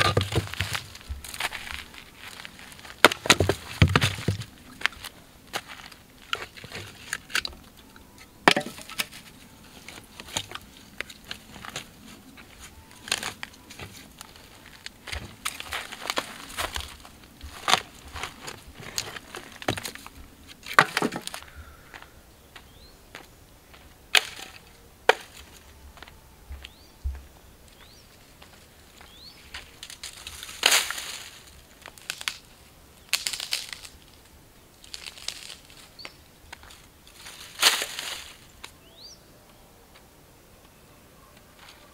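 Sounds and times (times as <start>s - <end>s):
dry twigs snapping and crunching: 0.0s - 21.6s, 24.1s - 25.6s, 29.5s - 38.8s
faint bird chirps: 25.8s - 28.2s, 38.8s - 41.9s.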